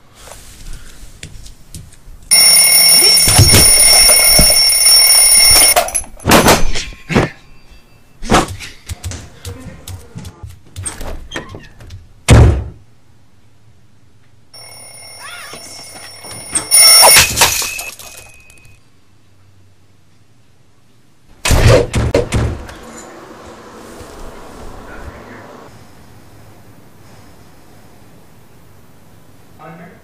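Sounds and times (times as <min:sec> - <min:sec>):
alarm clock ringing: 0:02.3 - 0:06.3, 0:14.6 - 0:18.8
clock crashing on floor: 0:02.3 - 0:07.3, 0:15.8 - 0:18.6
sharp thunk: 0:12.3 - 0:12.8, 0:21.4 - 0:22.7.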